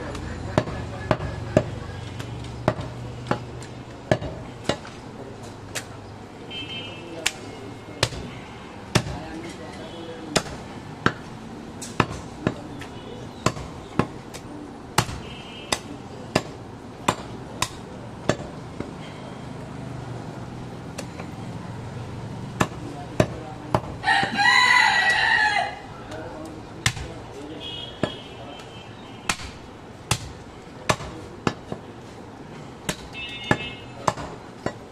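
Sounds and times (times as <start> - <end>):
cleaver chopping meat on wood: 0.1 - 5.0, 8.9 - 9.3, 10.3 - 19.0, 20.9 - 21.3, 22.5 - 24.4, 26.8 - 27.1, 29.3 - 31.9, 32.8 - 34.9
rooster crowing: 24.0 - 25.9.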